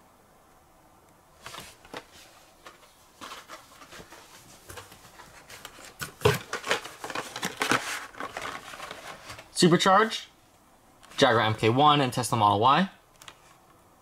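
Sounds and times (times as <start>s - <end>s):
plastic and cardboard packaging rustling: 1.4s - 9.9s.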